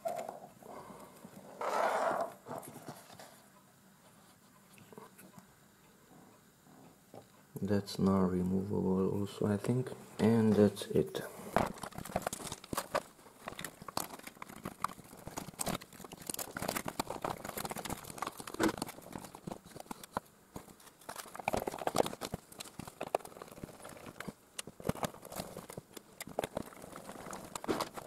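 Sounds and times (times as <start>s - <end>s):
plastic parts clicking and rattling: 11.6s - 28.0s.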